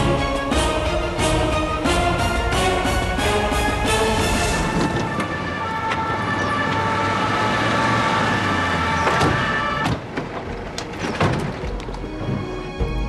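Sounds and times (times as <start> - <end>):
police siren: 4.4 - 9.9.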